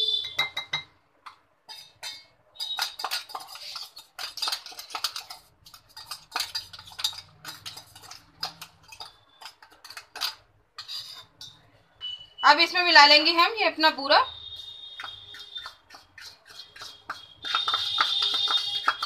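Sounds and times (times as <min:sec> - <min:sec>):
metal spoon scraping metal jar: 0:01.7 - 0:11.7, 0:14.5 - 0:19.0.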